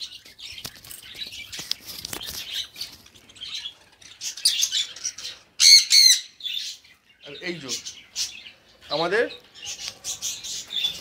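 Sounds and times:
small parrots chirping and chattering: 0.0s - 11.0s
harsh parrot squawks: 5.6s - 6.4s.

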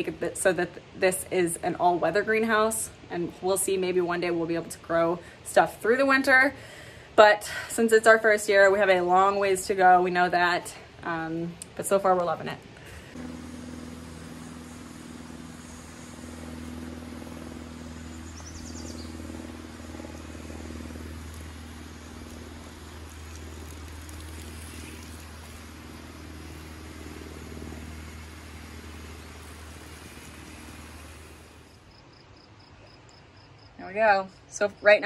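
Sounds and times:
low motor hum: 8.7s - 32.5s
water spraying from hose: 13.0s - 31.8s.

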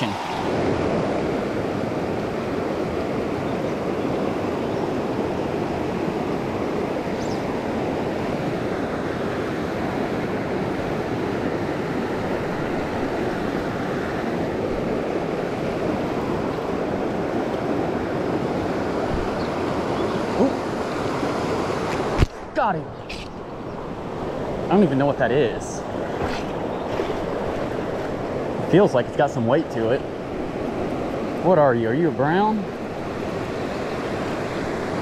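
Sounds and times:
river rushing over rocks: 0.0s - 6.7s.

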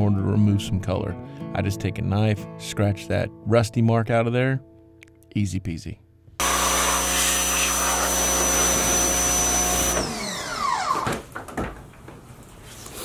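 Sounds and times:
pressure washer motor whine: 6.4s - 11.1s.

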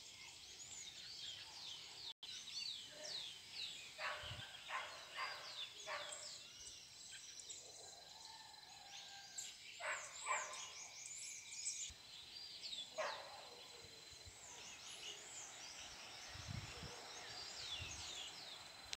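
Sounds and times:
wild birds chirping: 0.0s - 18.9s.

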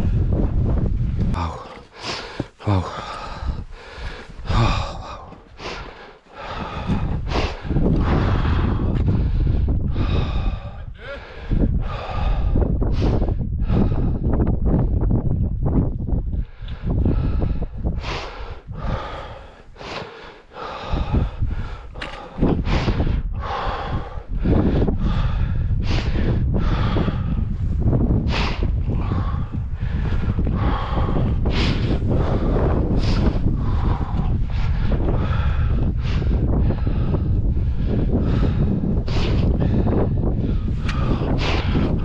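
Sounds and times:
wind rumbling on microphone: 0.0s - 42.0s
person breathing hard: 1.2s - 15.1s, 16.3s - 42.0s
grunting sighs: 1.3s - 14.3s.

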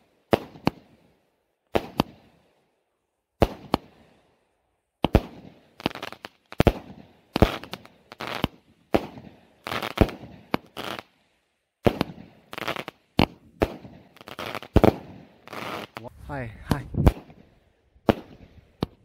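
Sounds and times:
fireworks bangs: 11.8s - 19.0s.

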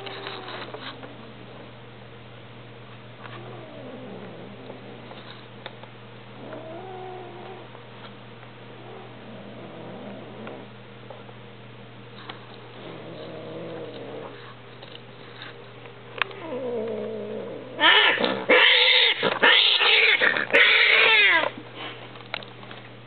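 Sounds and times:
cats yowling and screeching: 0.0s - 1.0s, 16.4s - 21.6s.

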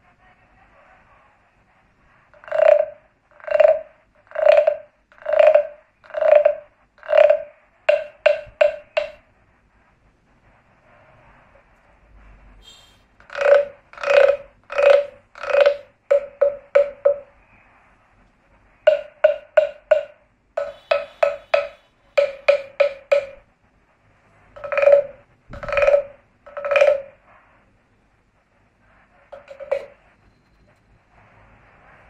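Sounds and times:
wooden guiro croaking: 2.3s - 9.3s, 12.6s - 17.6s, 18.7s - 23.5s, 24.3s - 27.5s, 29.3s - 30.3s.

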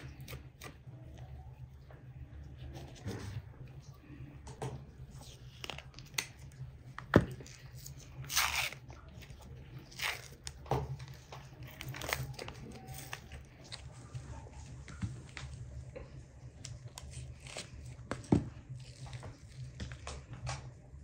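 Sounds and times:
tearing and crackling rips: 7.4s - 13.8s.

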